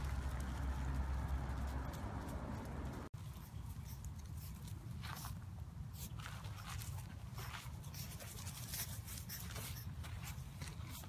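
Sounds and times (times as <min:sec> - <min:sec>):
low steady rumble: 0:00.0 - 0:06.6.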